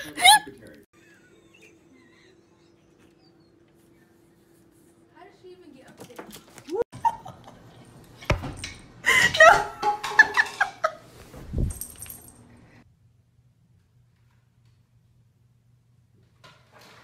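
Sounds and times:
person laughing: 0:00.0 - 0:03.0, 0:06.8 - 0:07.8.

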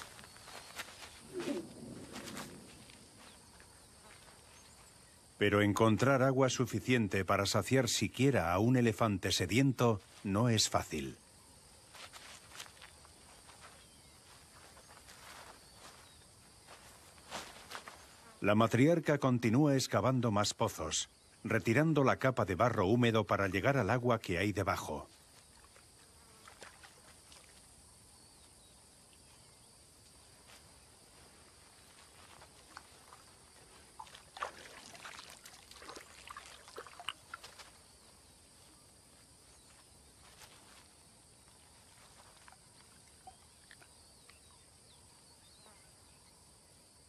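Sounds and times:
faint insect buzz: 0:00.0 - 0:05.8, 0:09.5 - 0:19.4, 0:24.9 - 0:47.0
soft scrapes and splashes: 0:26.4 - 0:27.7, 0:32.5 - 0:37.8.

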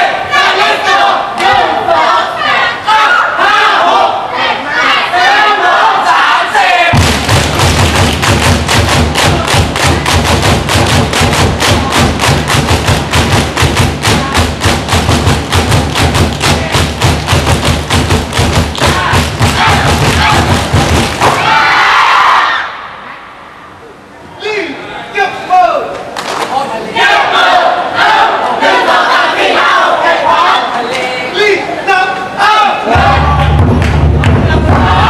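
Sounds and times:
fast deep drumming: 0:06.9 - 0:21.4, 0:32.9 - 0:35.0
voices shouting: 0:18.8 - 0:20.6.

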